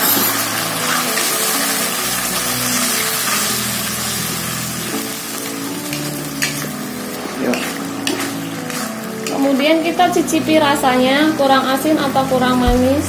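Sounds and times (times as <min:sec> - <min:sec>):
sauce sizzling in a wok: 0:00.0 - 0:13.0
metal spatula scraping: 0:02.6 - 0:03.6, 0:05.9 - 0:09.6.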